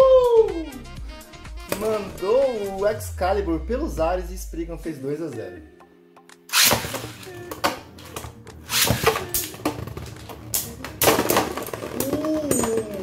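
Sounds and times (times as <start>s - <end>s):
spinning tops launched: 6.5s - 7.3s, 8.7s - 9.5s
spinning tops clashing: 8.7s - 9.6s.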